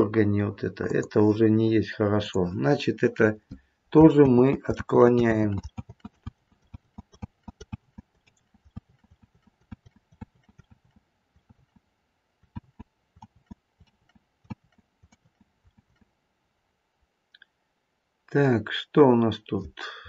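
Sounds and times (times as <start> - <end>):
computer mouse and keyboard clicks: 3.5 - 11.8, 12.5 - 16.1.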